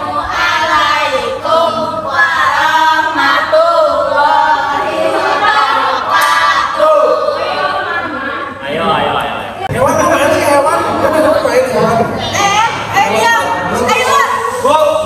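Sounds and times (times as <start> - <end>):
group singing without instruments: 0.0 - 9.1.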